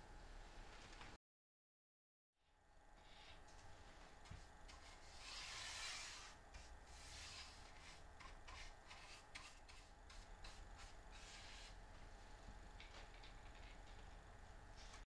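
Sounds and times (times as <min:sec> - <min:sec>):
brush rubbing on wood: 0:04.4 - 0:11.8.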